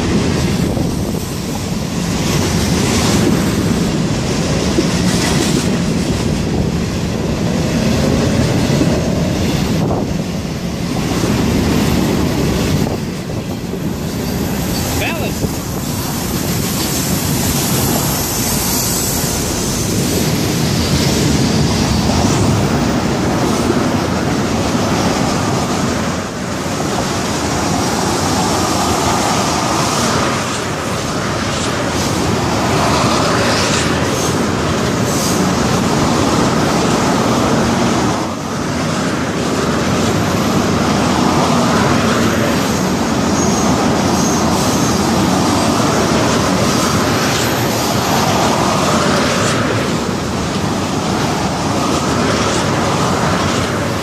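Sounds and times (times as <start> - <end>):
train wheels rumbling on rails: 0.0 - 54.0
faint wheel squeal: 43.3 - 45.0.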